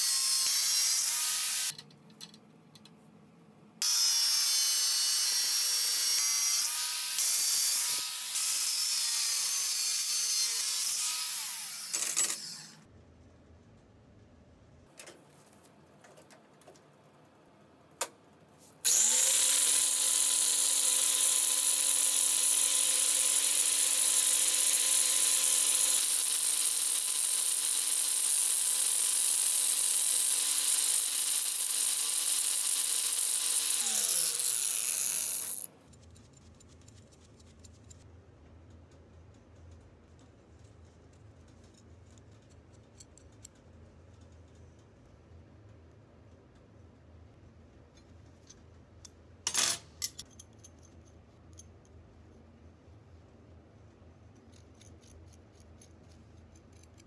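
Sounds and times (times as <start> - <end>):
angle grinder whining: 18.9 - 26.2, 32.8 - 35.7.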